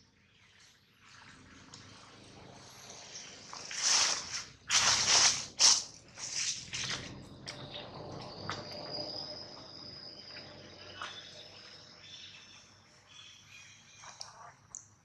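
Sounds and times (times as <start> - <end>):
high-pitched insect trill: 2.6 - 14.2.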